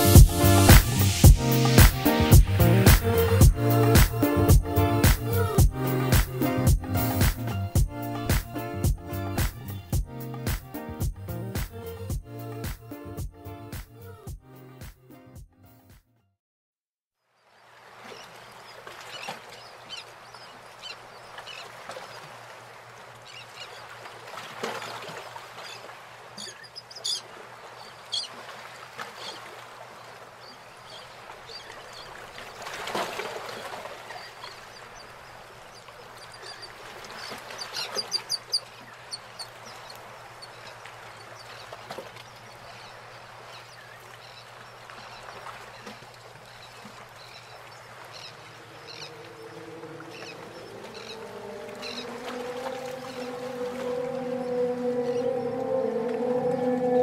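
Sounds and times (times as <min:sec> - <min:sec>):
bird calls: 0:18.0 - 0:22.4, 0:24.8 - 0:57.0.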